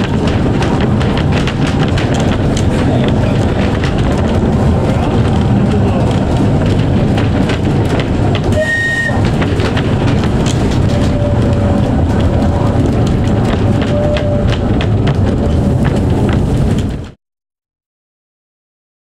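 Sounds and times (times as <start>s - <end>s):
steady whine: 0.0s - 17.2s
track clicking: 0.0s - 17.2s
tram rumbling on rails: 0.0s - 17.2s
high squeal: 8.5s - 9.3s.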